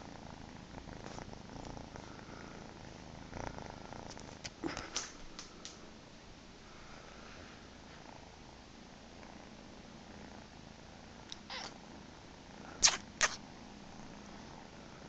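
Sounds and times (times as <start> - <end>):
cat purring: 0.0 - 6.0, 6.7 - 15.0
short sharp loud sounds: 12.8 - 13.4.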